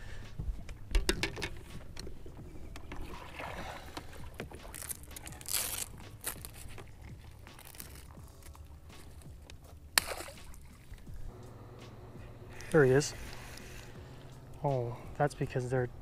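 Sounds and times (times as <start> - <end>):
water splashing in a bucket: 2.9 - 6.5.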